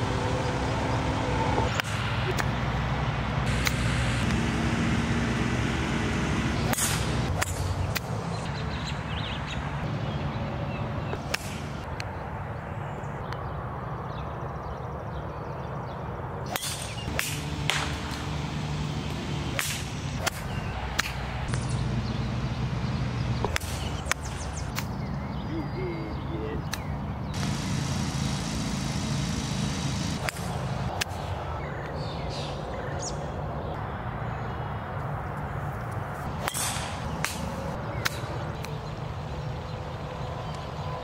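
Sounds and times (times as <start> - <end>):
low engine hum: 0.0 - 41.0
golf clubs striking ball: 1.6 - 2.6, 3.6 - 8.3, 11.1 - 12.1, 16.5 - 25.0, 26.7 - 31.4, 36.3 - 38.8.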